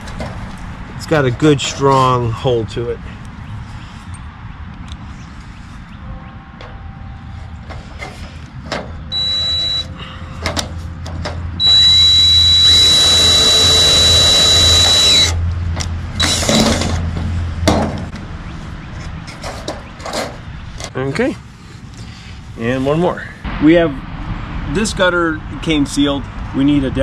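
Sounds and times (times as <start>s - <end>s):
cordless drill whining: 11.6s - 15.4s.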